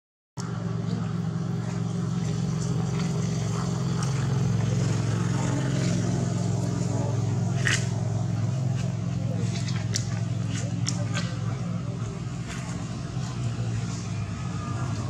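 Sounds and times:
vehicle engine idling: 0:00.4 - 0:15.0.

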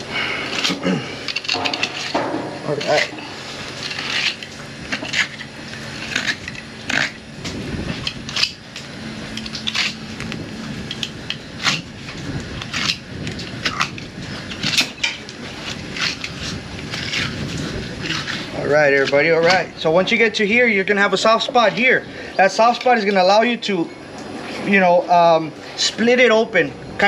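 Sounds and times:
knife scraping fish scales: 0:00.2 - 0:07.2, 0:09.3 - 0:10.3, 0:10.9 - 0:15.0, 0:15.6 - 0:19.6.

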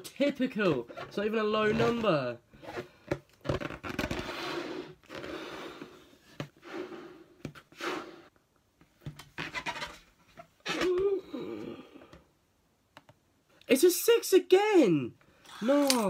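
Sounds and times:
balloon rubber stretching: 0:00.0 - 0:08.4, 0:09.0 - 0:12.2
breaths blown into balloon: 0:04.0 - 0:08.4.

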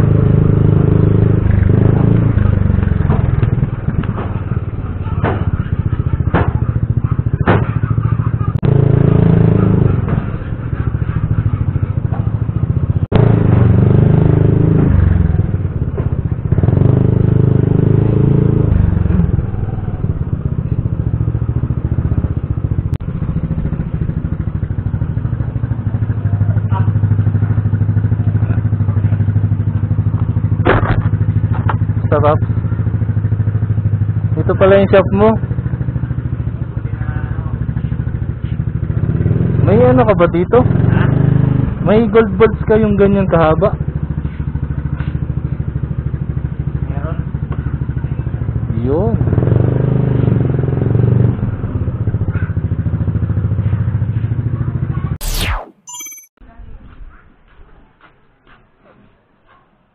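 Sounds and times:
motor scooter engine running: 0:00.0 - 0:55.2
clatter: 0:01.2 - 0:14.1, 0:20.7 - 0:32.9.

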